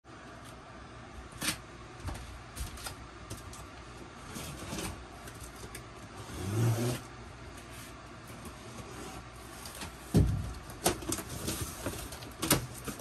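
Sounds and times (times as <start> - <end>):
handling knocks and rustles: 9.5 - 13.0.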